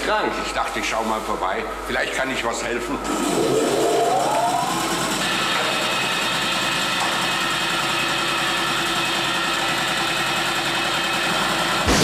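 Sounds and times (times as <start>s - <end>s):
air compressor running: 0.0s - 12.0s.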